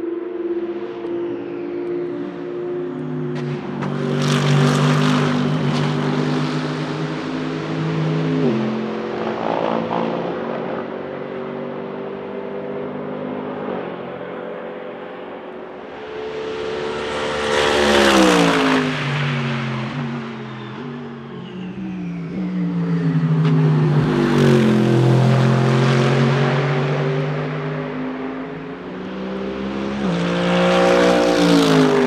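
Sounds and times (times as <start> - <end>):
race car passing close: 15.8 - 32.0.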